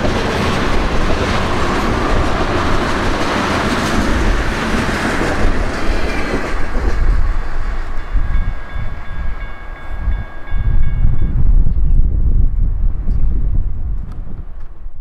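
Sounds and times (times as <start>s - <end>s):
freight train wheels clattering: 0.0s - 11.2s.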